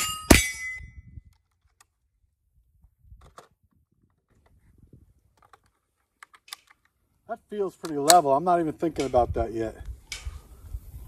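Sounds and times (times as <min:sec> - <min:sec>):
steel target ringing: 0:00.0 - 0:00.9
rifle handling clicks: 0:05.3 - 0:07.0, 0:07.8 - 0:08.3.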